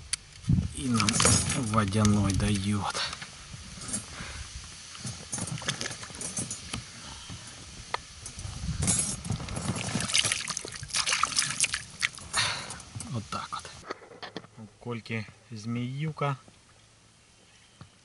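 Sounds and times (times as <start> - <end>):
water splashing around boat: 9.6 - 12.8.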